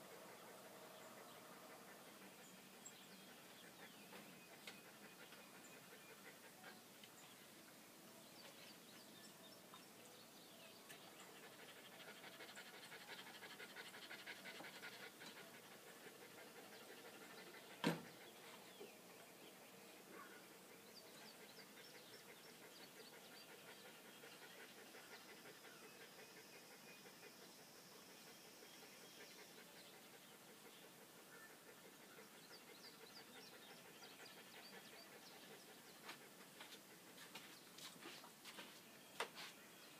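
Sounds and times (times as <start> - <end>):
dog panting: 0.0 - 6.9, 11.0 - 38.0.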